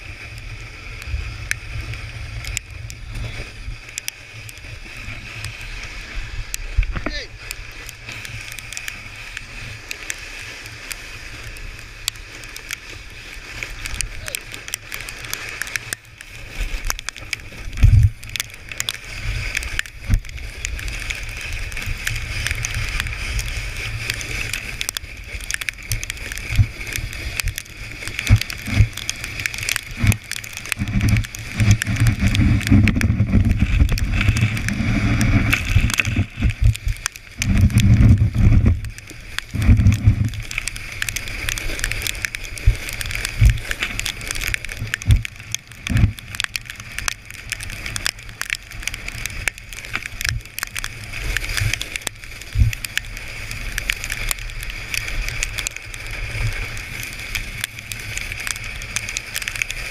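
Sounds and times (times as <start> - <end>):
sled scraping hiss on snow: 0.0 - 59.9
low rumbling buffets and knocks: 6.4 - 7.2, 29.9 - 41.1, 44.7 - 46.9.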